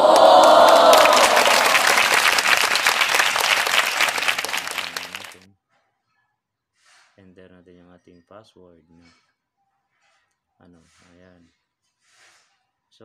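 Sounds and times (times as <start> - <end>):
crowd clapping: 0.0 - 5.5
people cheering: 0.0 - 5.5.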